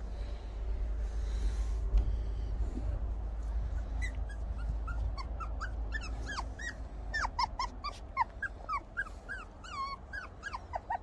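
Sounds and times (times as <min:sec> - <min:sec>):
puppies whimpering and squeaking: 0:03.7 - 0:11.0.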